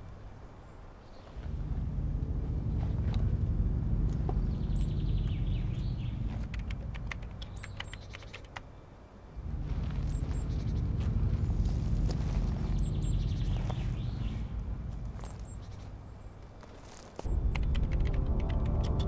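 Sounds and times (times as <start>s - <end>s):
deep low rumble: 1.4s - 7.4s, 9.4s - 16.2s, 17.3s - 19.0s.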